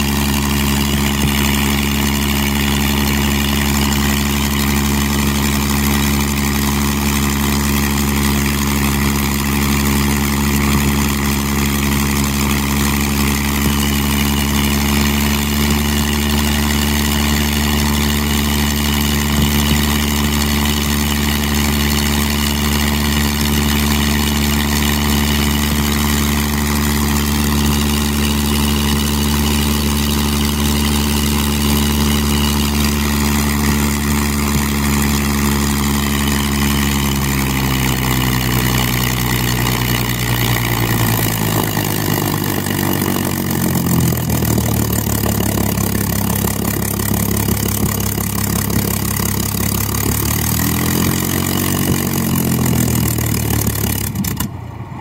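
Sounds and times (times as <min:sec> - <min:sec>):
aircraft engine idling and revving: 0:00.0 - 0:55.0.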